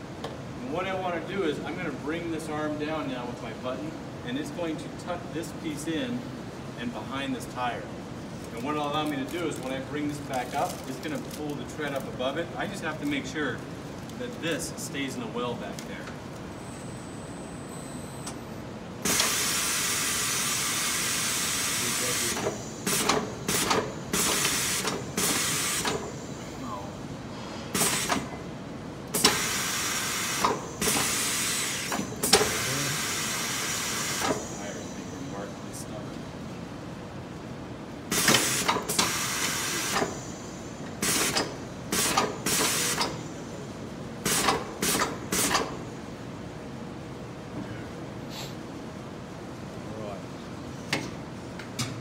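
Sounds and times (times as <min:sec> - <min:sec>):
pneumatic air hissing bursts: 0:19.0 - 0:26.4, 0:27.3 - 0:28.3, 0:29.1 - 0:34.8, 0:38.1 - 0:43.4, 0:44.2 - 0:45.8.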